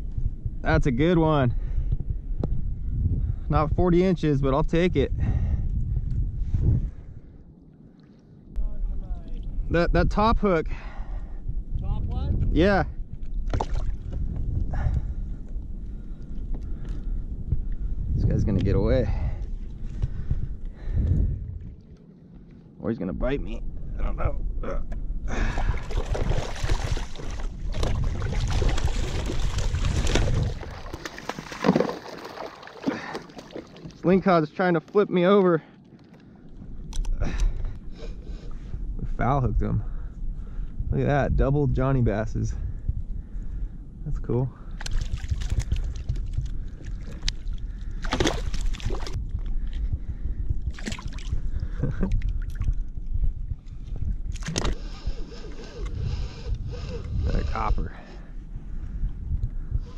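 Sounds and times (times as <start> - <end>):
wind on microphone: 0.0 - 7.6, 8.4 - 34.3, 36.3 - 59.9
water sloshing against kayak: 25.5 - 34.2, 44.8 - 49.8
fish thrashing and splashing: 25.6 - 34.0, 44.8 - 49.2, 50.7 - 51.4.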